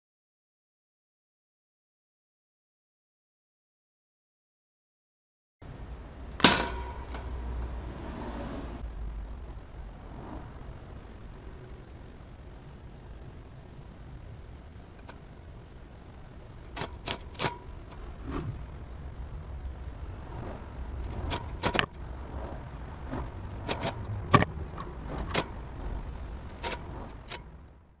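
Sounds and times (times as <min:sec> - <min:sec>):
low steady rumble: 0:05.6 - 0:28.0.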